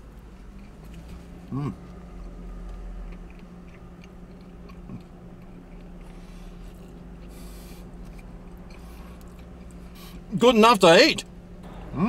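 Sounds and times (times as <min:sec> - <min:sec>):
man chewing: 0:00.0 - 0:10.3
steady low hum: 0:00.0 - 0:12.0.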